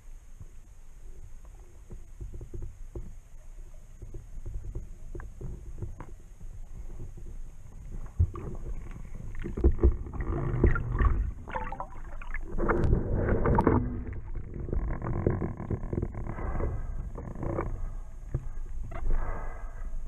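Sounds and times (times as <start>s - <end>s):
wavering creak: 8.4s - 11.0s, 12.5s - 19.2s.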